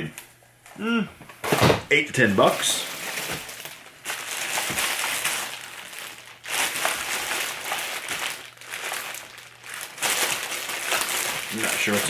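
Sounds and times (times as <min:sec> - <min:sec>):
plastic bag crinkling: 0:02.4 - 0:12.0.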